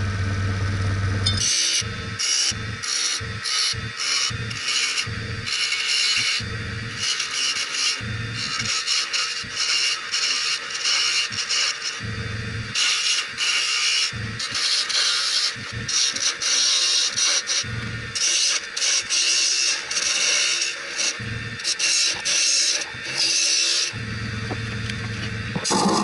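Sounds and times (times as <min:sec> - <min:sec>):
low rumble: 0:00.0 - 0:01.4
lathe tool cutting wood: 0:00.0 - 0:26.0.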